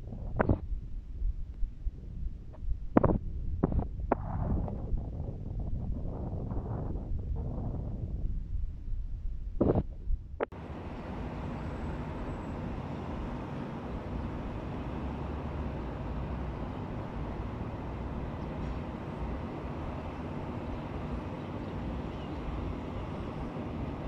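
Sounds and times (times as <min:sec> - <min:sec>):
distant traffic hum: 0:09.6 - 0:24.0.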